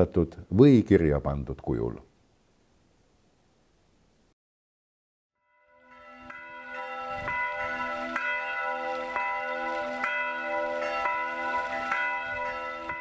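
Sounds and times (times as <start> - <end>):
church bells ringing: 5.4 - 13.0.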